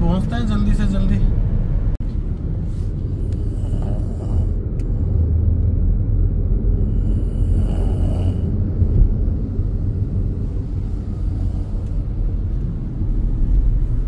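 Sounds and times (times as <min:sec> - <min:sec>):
engine and tyre road noise: 0:00.0 - 0:14.0.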